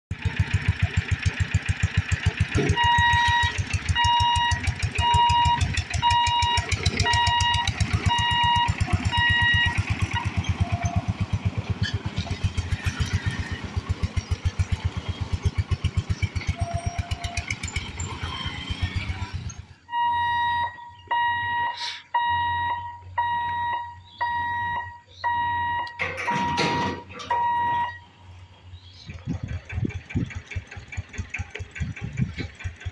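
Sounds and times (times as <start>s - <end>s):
repeating electronic beep: 2.7s - 11.1s, 16.4s - 18.5s, 19.9s - 28.0s
electric bell clatter: 25.9s - 28.0s.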